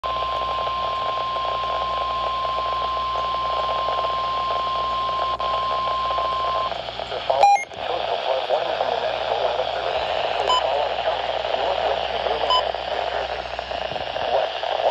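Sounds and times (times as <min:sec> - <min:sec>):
radio static hiss: 0:00.1 - 0:14.9
brief beep: 0:07.4 - 0:07.7.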